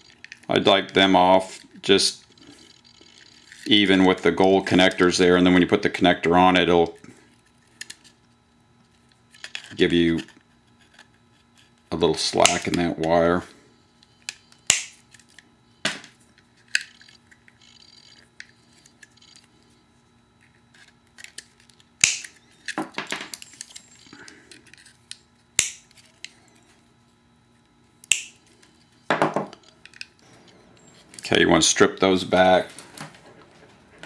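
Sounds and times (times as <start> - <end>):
wire cutters snipping: 22.0 - 22.4, 25.6 - 26.0, 28.0 - 28.4.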